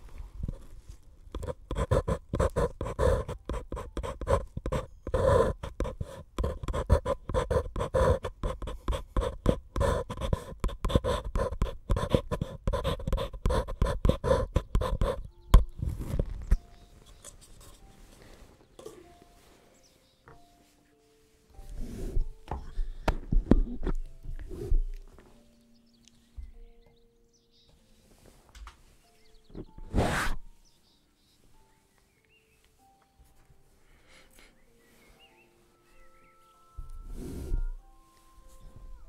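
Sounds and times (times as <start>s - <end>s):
pencil scribbling on paper cup: 1.3s - 18.2s, 21.6s - 25.0s, 29.8s - 30.5s.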